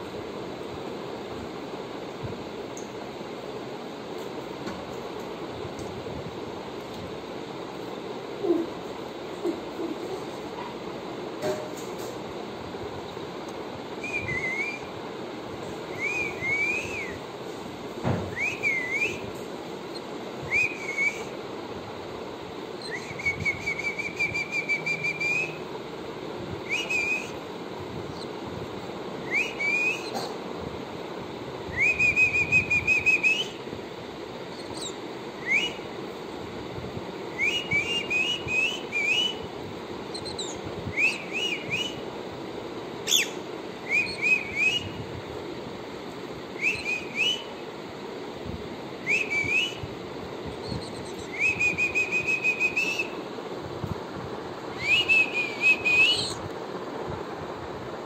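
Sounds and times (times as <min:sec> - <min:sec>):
steady low hum: 0:00.0 - 0:58.0
cockatiel whistling: 0:18.3 - 0:19.3, 0:19.9 - 0:21.3, 0:22.8 - 0:25.6, 0:26.6 - 0:27.4, 0:29.2 - 0:30.3, 0:31.8 - 0:33.6, 0:34.5 - 0:35.8, 0:37.3 - 0:39.4, 0:40.1 - 0:42.0, 0:43.0 - 0:45.0, 0:46.6 - 0:47.5, 0:49.0 - 0:49.8, 0:50.6 - 0:53.2, 0:54.7 - 0:56.4.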